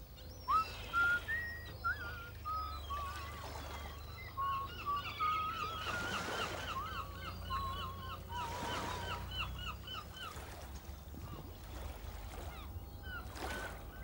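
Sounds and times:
steady low hum: 0.0 - 14.0
whistled tune: 0.3 - 7.9.

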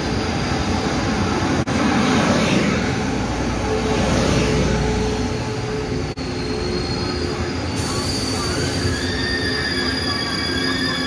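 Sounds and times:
high-pitched brake squeal: 5.7 - 11.0.

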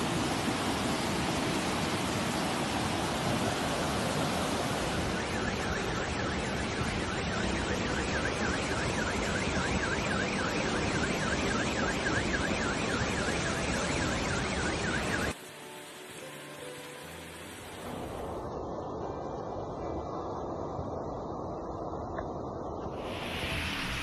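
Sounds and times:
floodwater rushing: 0.0 - 21.0
car alarm warbling: 4.7 - 15.4.

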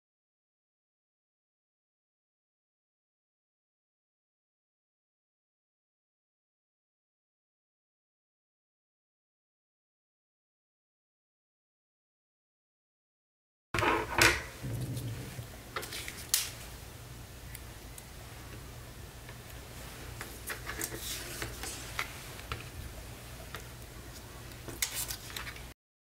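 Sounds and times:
low steady hum: 13.8 - 25.7.

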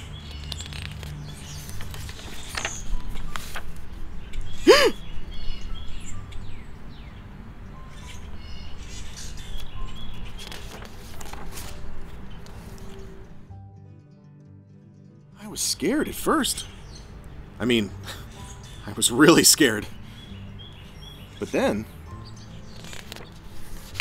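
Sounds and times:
birds chirping: 0.0 - 10.8, 15.4 - 23.6
soft background music: 0.0 - 24.0.

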